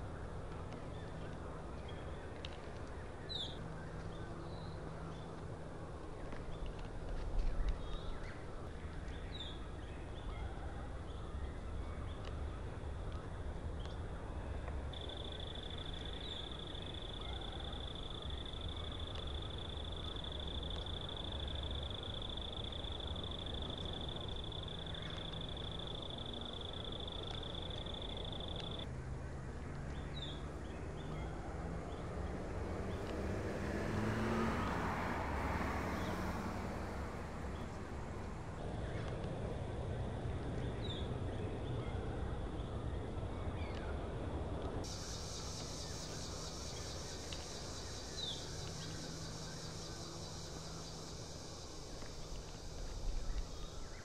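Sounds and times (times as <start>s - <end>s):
insect high-pitched trill: 44.9s - 54.0s.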